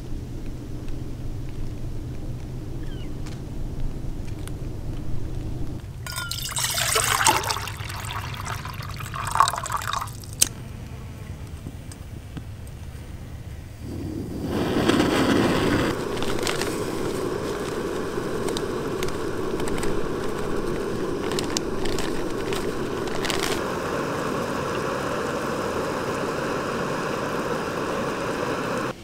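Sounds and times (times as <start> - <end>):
camping stove burner rushing: 6.0 - 29.0
paper bag crinkling: 16.0 - 23.6.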